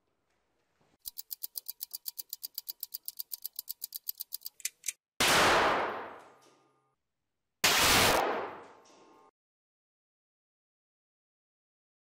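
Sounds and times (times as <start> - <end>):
fast even ticking: 1.0 - 4.9.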